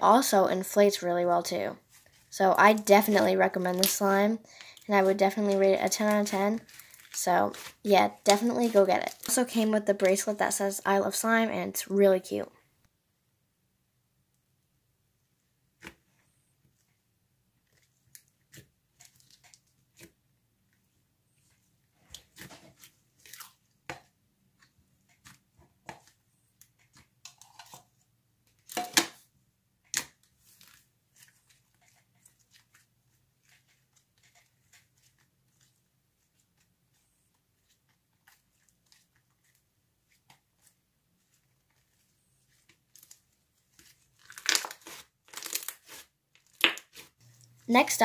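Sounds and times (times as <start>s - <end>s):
slime squishing with sticky pops: 37.6s - 47.2s.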